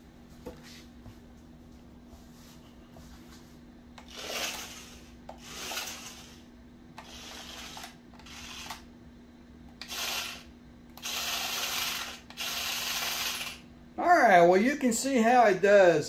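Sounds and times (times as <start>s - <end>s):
steady low hum: 0.0s - 16.0s
wheels scrubbing floor: 4.0s - 6.4s
toy car motors whirring: 4.0s - 8.9s, 9.8s - 13.6s.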